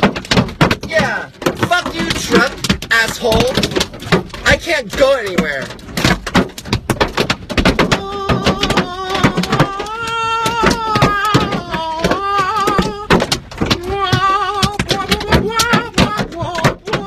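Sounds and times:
hail knocking on car roof: 0.0s - 17.0s
man wailing: 7.7s - 17.0s.

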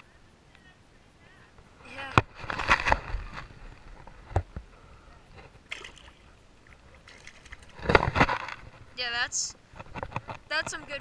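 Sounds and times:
fish splashing into water: 5.7s - 7.9s.

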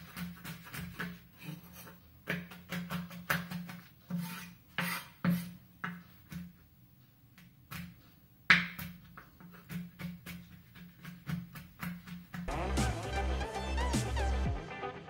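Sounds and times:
knife chopping on wooden board: 2.2s - 6.5s, 7.7s - 12.5s.

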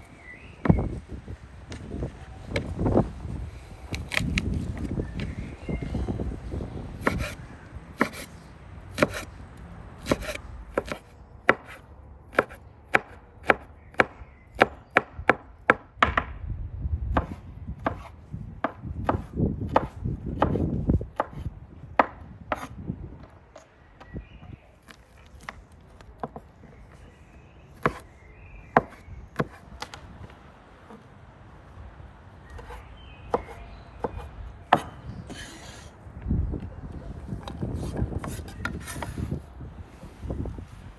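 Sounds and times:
cleaver chopping on wooden board: 8.9s - 9.3s, 10.0s - 16.3s, 17.1s - 22.7s, 27.8s - 28.0s, 28.7s - 29.6s, 32.6s - 35.0s.

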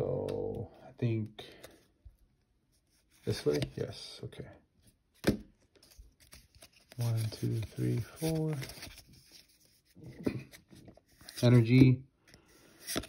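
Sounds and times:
person counting: 0.0s - 1.7s, 6.8s - 9.0s
trading cards rustling and clicking: 3.0s - 4.0s, 5.2s - 11.9s, 12.5s - 13.0s.

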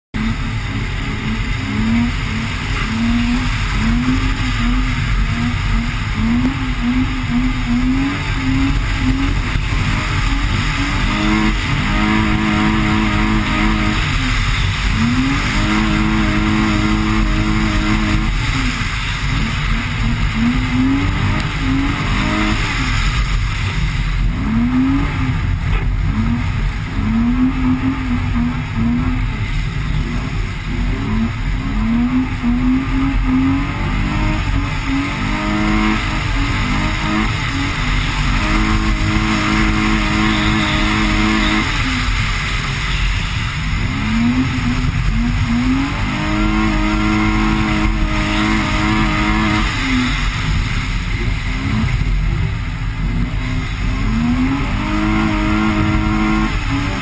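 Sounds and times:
car engine revving: 0.0s - 57.0s
wind and tyre noise: 0.0s - 57.0s.

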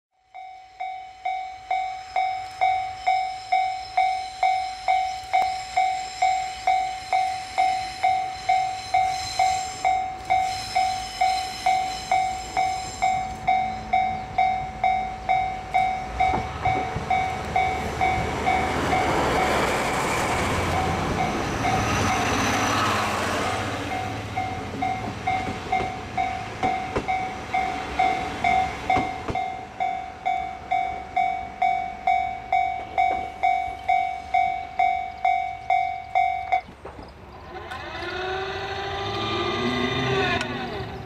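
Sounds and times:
level crossing warning bell: 0.2s - 36.8s
diesel train passing: 0.3s - 41.0s
train wheels on rails: 0.4s - 41.0s.

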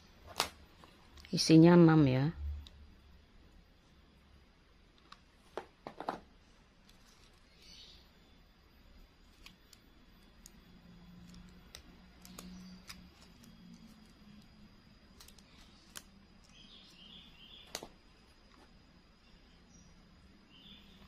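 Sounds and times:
plastic clicking and crinkling: 9.2s - 16.6s, 17.6s - 18.7s.

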